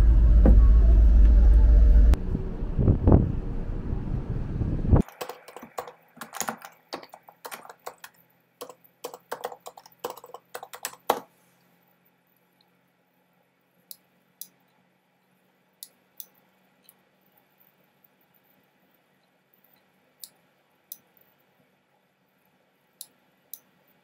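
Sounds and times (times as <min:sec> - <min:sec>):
computer keyboard typing: 0:05.0 - 0:11.3.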